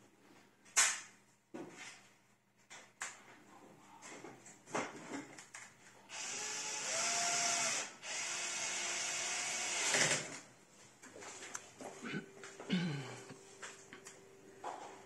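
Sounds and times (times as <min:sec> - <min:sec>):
power drill driving screws: 0:06.1 - 0:10.4.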